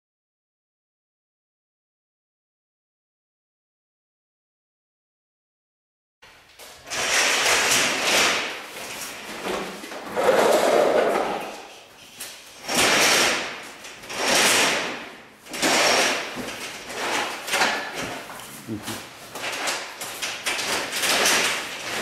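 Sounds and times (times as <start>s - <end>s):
curtain dragged along rail: 6.8s - 18.7s, 19.4s - 22.0s.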